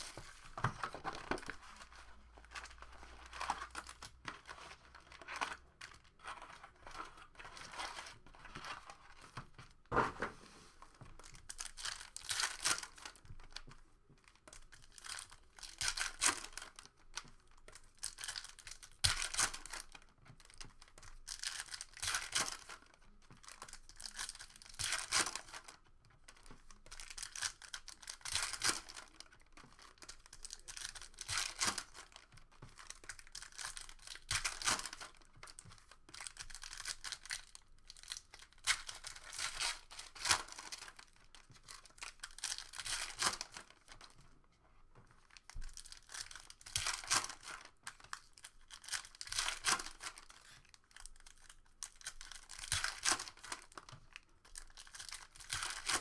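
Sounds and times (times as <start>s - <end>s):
foil wrappers tearing and crinkling: 20.9s - 25.8s, 29.8s - 32.2s, 32.8s - 35.2s, 35.8s - 44.0s, 45.5s - 53.9s, 54.5s - 56.0s.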